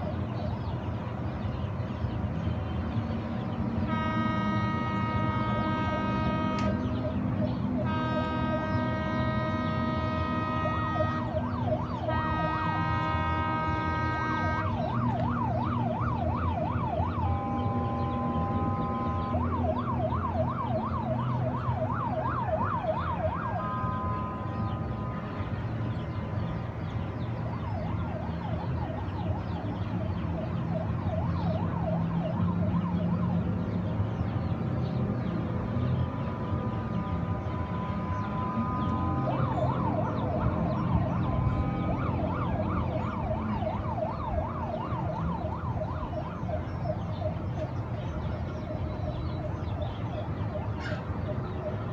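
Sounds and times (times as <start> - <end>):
low engine drone: 0.0 - 51.9
boat horns blasting: 3.8 - 15.5, 16.8 - 21.0, 23.1 - 26.5, 34.4 - 44.6.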